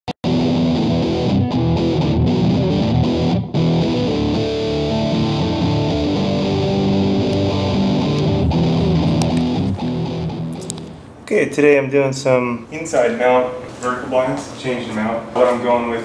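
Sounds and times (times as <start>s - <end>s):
guitar-led intro music: 0.2s - 11.1s.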